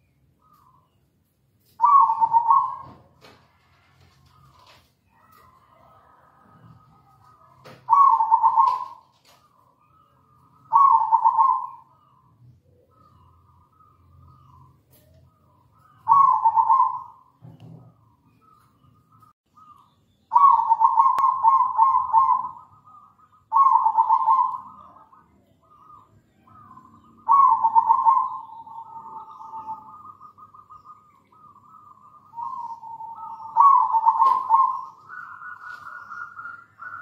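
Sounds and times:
dove cooing: 1.7s - 37.0s.

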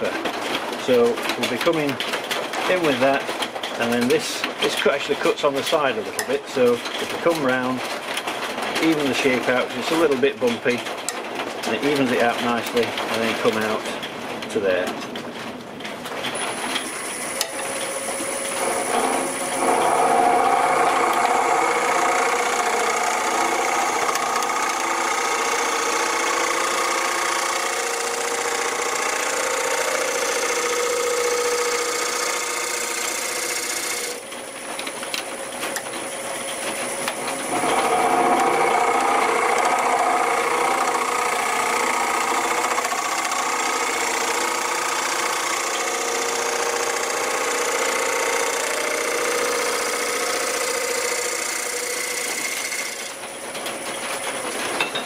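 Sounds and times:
wood lathe motor whine: 16.4s - 55.0s
scraper cutting spinning wood: 16.8s - 34.3s, 35.7s - 53.2s.

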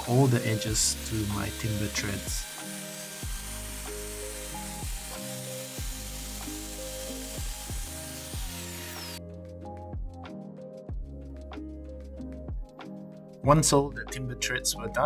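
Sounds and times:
router whining: 0.0s - 9.2s
background music with beats: 0.0s - 15.0s.

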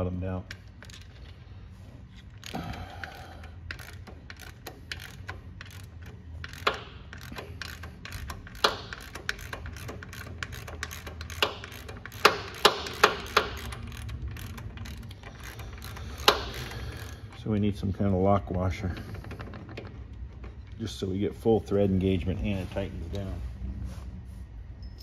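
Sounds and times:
ratchet clicking on metal: 0.0s - 1.4s, 2.1s - 17.8s.

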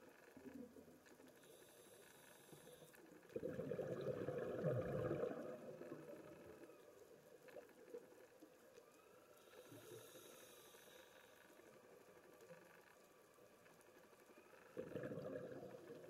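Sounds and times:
underwater breath bubbling: 1.6s - 6.5s, 14.8s - 16.0s.

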